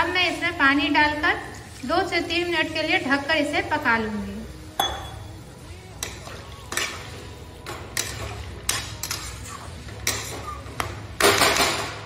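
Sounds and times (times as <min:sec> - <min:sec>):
spoon scraping metal pan: 0:05.9 - 0:10.8.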